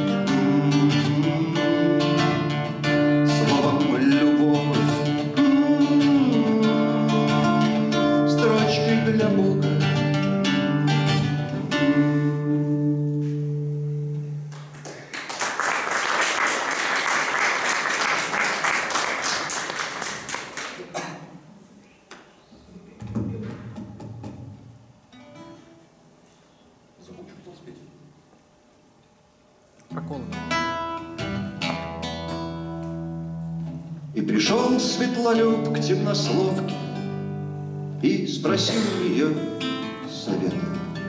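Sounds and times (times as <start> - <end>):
nylon-string guitar playing: 0.0 - 14.5, 29.9 - 41.0
audience applause: 14.5 - 21.0.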